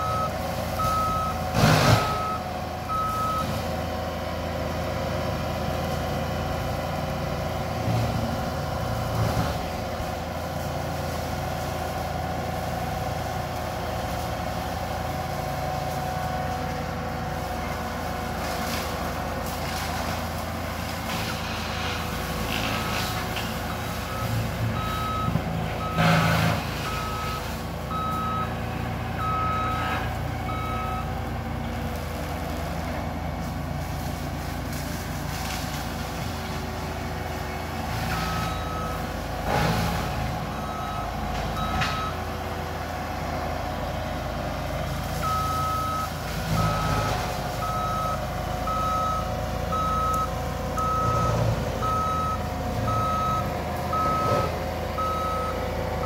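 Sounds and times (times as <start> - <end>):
backup alarm beeping: 0.0 - 1.4, 45.2 - 56.0.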